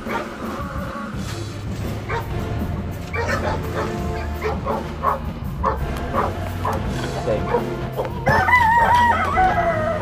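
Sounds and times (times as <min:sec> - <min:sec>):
background music: 0:00.0 - 0:10.0
animal calls: 0:03.1 - 0:10.0
rooster crowing: 0:08.2 - 0:10.0.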